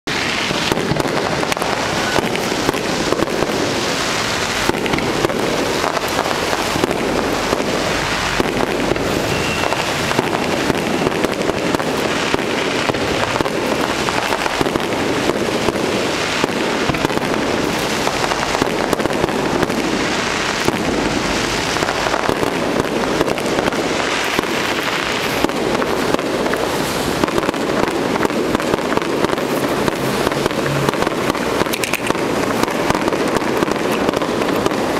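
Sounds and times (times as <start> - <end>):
fireworks bangs and crackling: 0.0 - 34.9.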